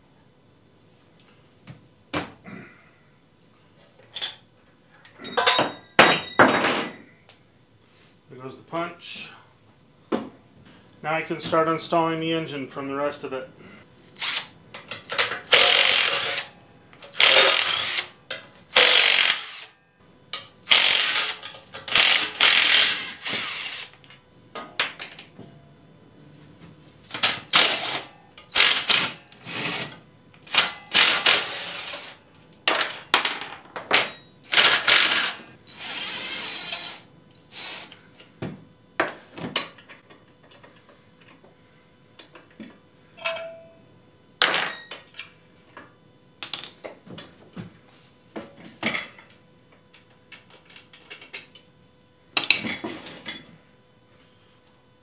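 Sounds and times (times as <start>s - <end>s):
metal parts clinking: 5.2s - 7.0s
cordless drill bursts: 14.2s - 14.5s, 15.5s - 16.5s, 17.1s - 18.1s, 18.7s - 19.7s, 20.7s - 23.9s, 27.5s - 29.9s, 30.5s - 32.2s, 34.4s - 37.9s.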